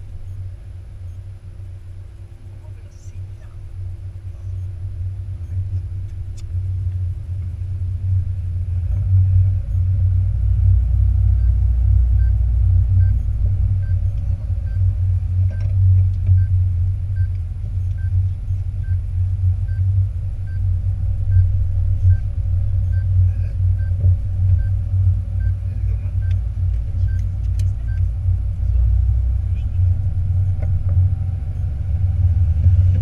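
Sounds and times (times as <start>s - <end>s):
car engine and road rumble: 0.0s - 33.0s
faint even ticking: 11.3s - 33.0s.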